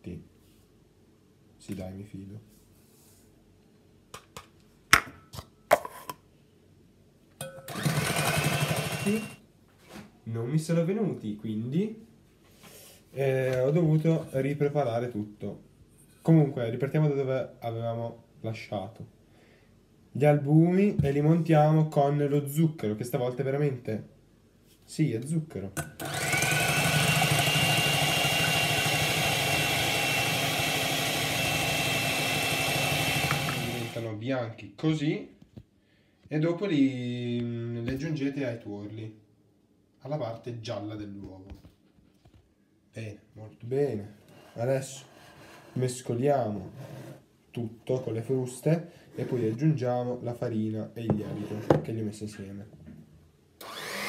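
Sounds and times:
stand mixer humming: 0:07.7 - 0:09.4, 0:25.9 - 0:34.0.

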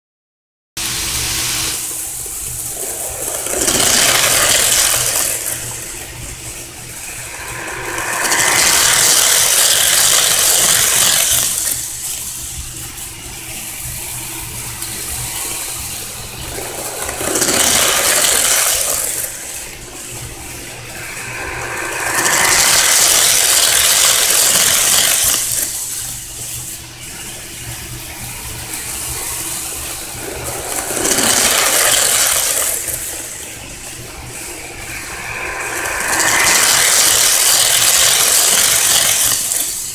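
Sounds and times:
model train motor whirring: 0:01.5 - 0:12.6, 0:13.8 - 0:26.8, 0:28.6 - 0:39.9
wheels rattling on rails: 0:01.8 - 0:12.2, 0:13.7 - 0:26.0, 0:27.0 - 0:39.9
steady low hum: 0:11.9 - 0:24.1, 0:25.8 - 0:38.2.

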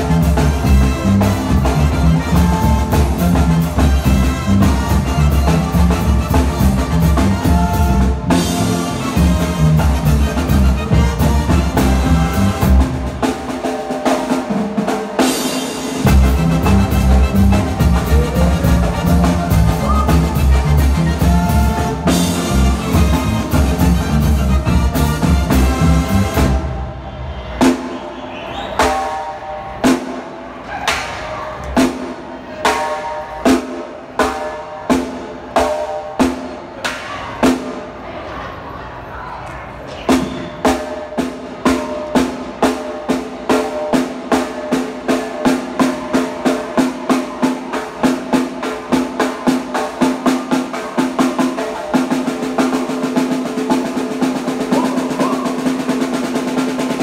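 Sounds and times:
drum roll: 0:00.0 - 0:26.9, 0:40.1 - 0:57.0
live band playing: 0:00.0 - 0:38.2, 0:40.0 - 0:57.0.

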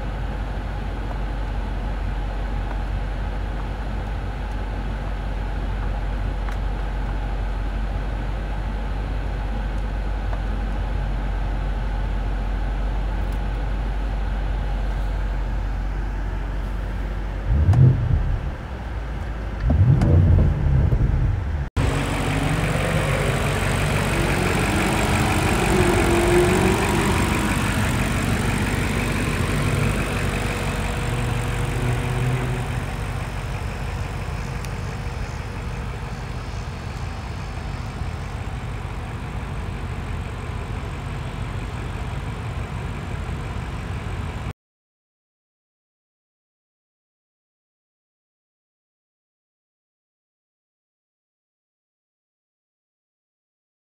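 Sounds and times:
car engine humming: 0:00.1 - 0:43.9
engine surges: 0:16.5 - 0:44.5.

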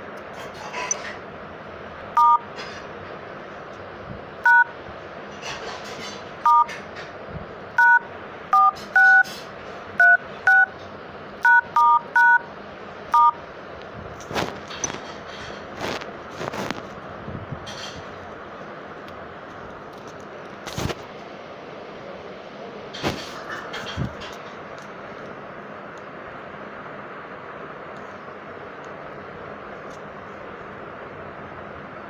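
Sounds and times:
keypad dual-tone beeps: 0:02.2 - 0:02.4, 0:04.4 - 0:04.7, 0:06.5 - 0:06.7, 0:07.8 - 0:08.0, 0:08.6 - 0:09.3, 0:10.0 - 0:10.7, 0:11.4 - 0:12.4, 0:13.1 - 0:13.4.

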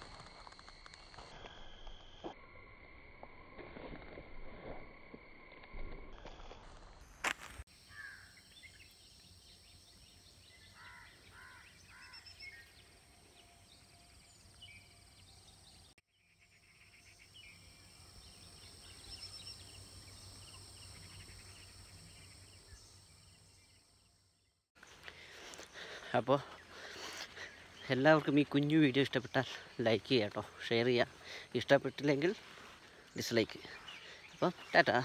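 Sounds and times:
faint bird calls: 0:07.8 - 0:09.0, 0:09.7 - 0:15.0
bird chirping: 0:07.8 - 0:35.0.

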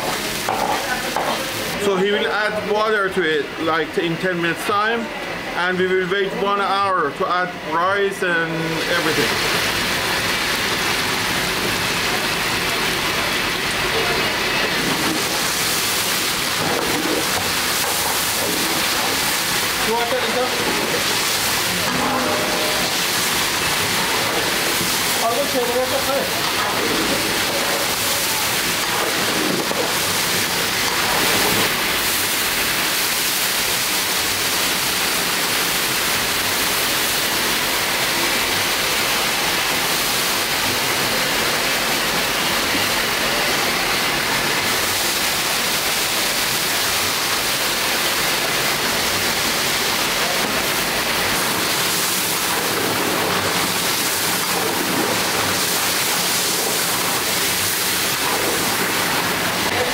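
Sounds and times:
water hitting hot pan: 0:00.0 - 0:01.7, 0:14.0 - 0:38.2, 0:44.4 - 0:59.8
meat sizzling in hot oil: 0:00.0 - 0:03.8, 0:07.9 - 0:59.9
ladle stirring in pan: 0:13.6 - 0:34.1, 0:50.4 - 0:59.7.

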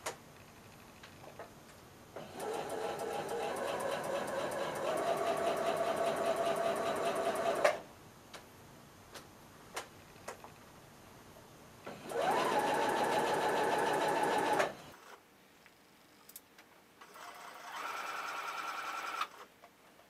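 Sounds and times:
sewing machine stitching: 0:02.2 - 0:07.8, 0:11.9 - 0:15.2, 0:17.0 - 0:19.5.

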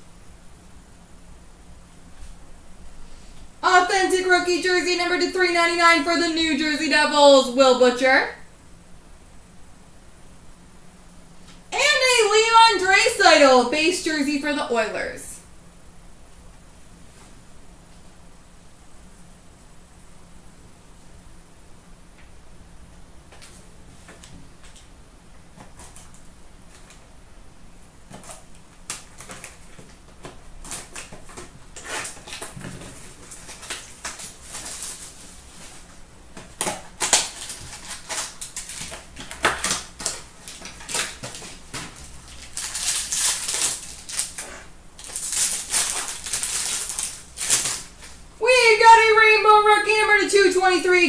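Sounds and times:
wrappers crinkling: 0:28.1 - 0:48.2.

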